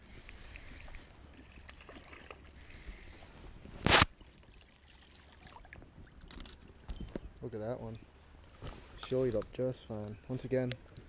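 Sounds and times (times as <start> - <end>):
light water sounds: 0.0 - 11.0
fish splashing: 0.1 - 3.3, 3.9 - 5.8.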